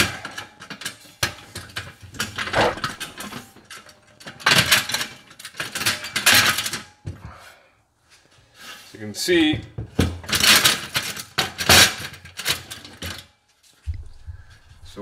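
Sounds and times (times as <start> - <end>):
metal ramp clanking and rattling: 2.2 - 6.9.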